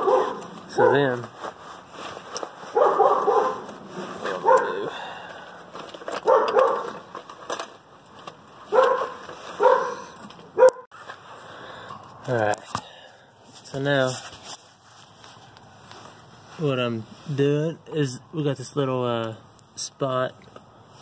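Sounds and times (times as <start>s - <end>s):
dog barking: 0.0s - 1.1s, 2.8s - 3.7s, 4.4s - 4.8s, 6.2s - 7.0s, 8.7s - 10.9s.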